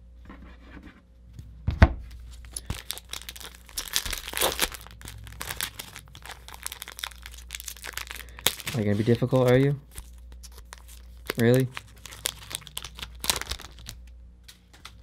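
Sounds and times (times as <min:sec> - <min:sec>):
foil wrapper tearing and crinkling: 0:02.4 - 0:14.0.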